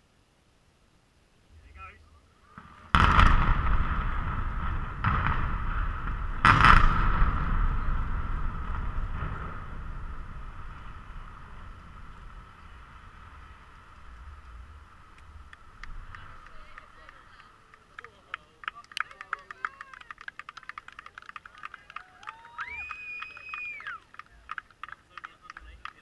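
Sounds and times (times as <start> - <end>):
low rumble of collapse: 1.5 - 18.8
explosive blasts: 2.4 - 17.7.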